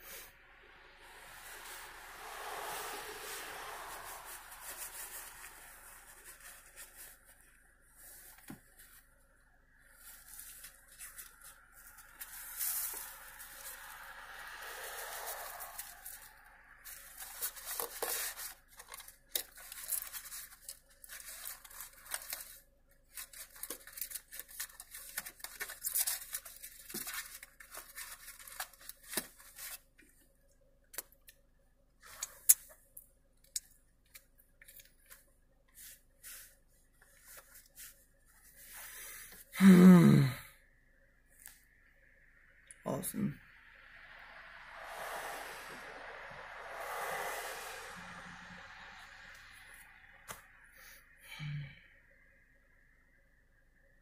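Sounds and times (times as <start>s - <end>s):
scratchy rustling and crackling: 1.4s - 9.2s, 9.8s - 30.0s
man groaning: 39.6s - 40.5s.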